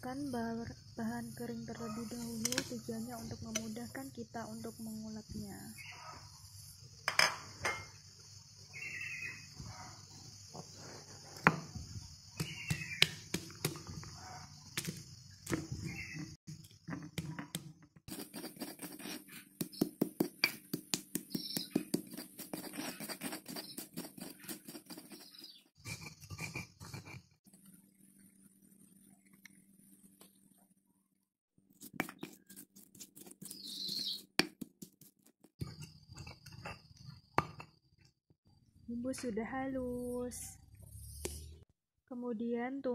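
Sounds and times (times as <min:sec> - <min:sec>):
chirps: 0:07.9 - 0:10.9, 0:11.7 - 0:16.4, 0:19.3 - 0:20.0, 0:21.2 - 0:27.0, 0:32.0 - 0:34.3, 0:40.0 - 0:41.7
stone pestle grinding spices: 0:18.1 - 0:27.3, 0:31.8 - 0:37.6.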